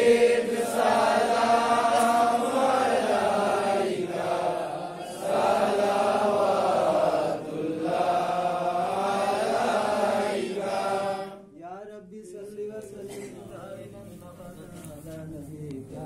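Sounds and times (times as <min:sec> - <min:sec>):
group chanting: 0:00.0 - 0:11.6.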